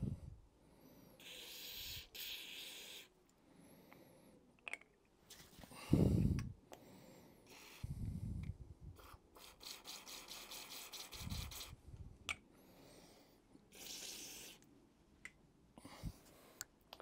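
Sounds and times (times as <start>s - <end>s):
aerosol spray hissing bursts: 1.2s - 3.1s, 7.5s - 7.8s, 9.0s - 11.8s, 13.7s - 14.6s.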